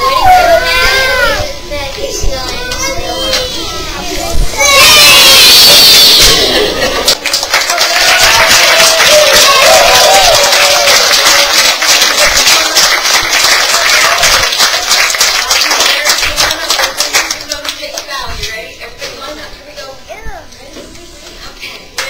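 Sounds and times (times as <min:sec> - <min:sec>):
audience applauding: 0:07.0 - 0:17.9
person cheering: 0:07.9 - 0:11.5.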